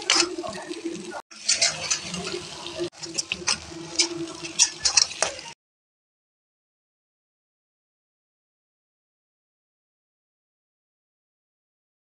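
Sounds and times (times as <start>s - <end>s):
meat sizzling in hot oil: 0.0s - 5.6s.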